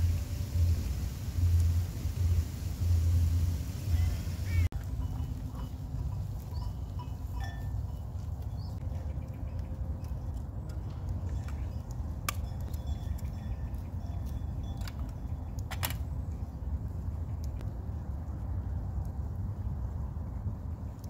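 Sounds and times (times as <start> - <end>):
steady low rumble: 0.0 - 21.0
sheep bells clinking: 4.0 - 16.3.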